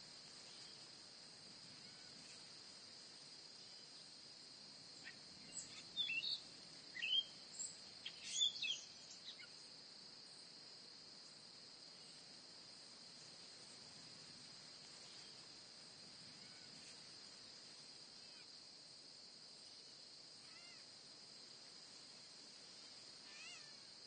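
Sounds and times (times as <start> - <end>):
bird chirps: 5.0 - 6.4, 7.0 - 9.5.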